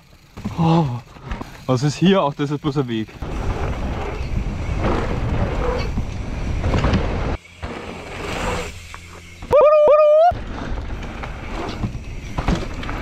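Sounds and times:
wind rumbling on microphone: 3.2 - 7.4.

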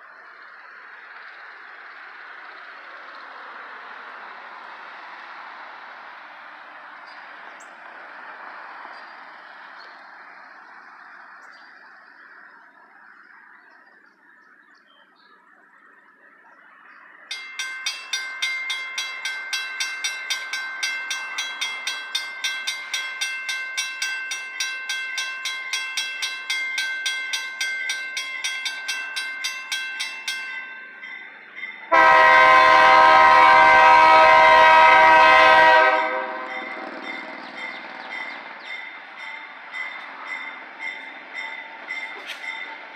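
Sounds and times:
railroad crossing bell ringing: 16.9 - 42.9
diesel locomotive horn: 31.9 - 36.8.

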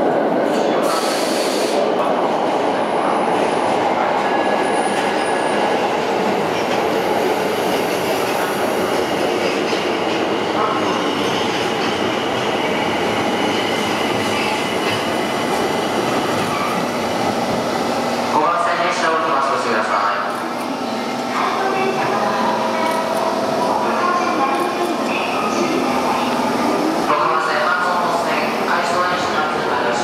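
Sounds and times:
subway trains rumbling: 0.0 - 30.0.

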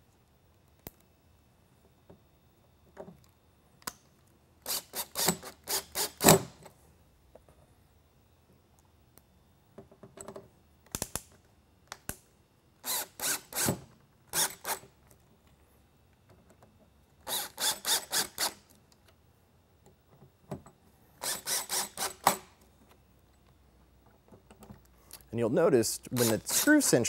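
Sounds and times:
cordless drill driving screws: 4.7 - 6.5, 12.8 - 13.8, 14.4 - 14.8, 17.3 - 18.6, 21.2 - 22.4, 26.2 - 26.8.

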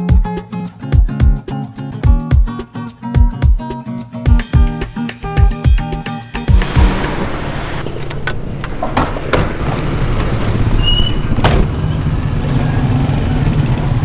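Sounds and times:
street traffic: 6.2 - 14.0
car engine rumbling: 6.4 - 14.0
sharp knocks: 8.1 - 10.6.

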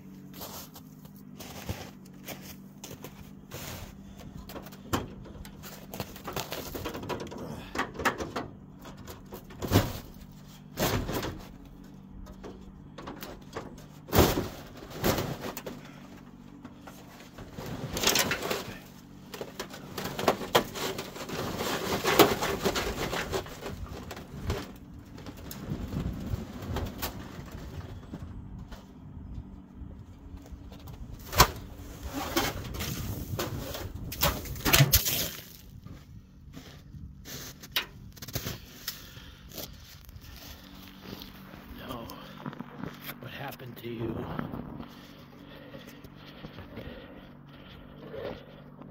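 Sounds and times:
footsteps in snow: 0.0 - 4.1, 35.3 - 43.2
snow brushed off metal hood: 0.2 - 4.2, 36.6 - 41.4.

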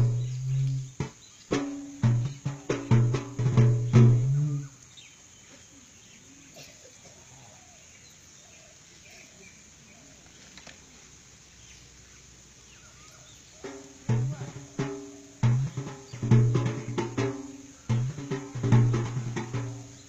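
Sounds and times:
ritual drumming: 0.0 - 4.8, 13.5 - 20.0
faint bird calls: 0.0 - 20.0.

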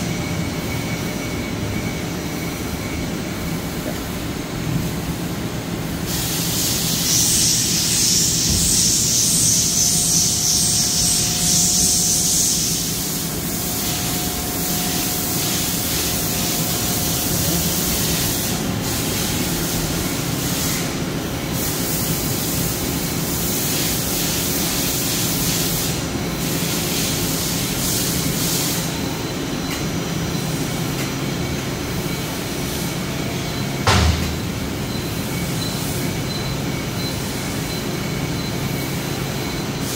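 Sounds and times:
loud hiss: 5.9 - 29.0.

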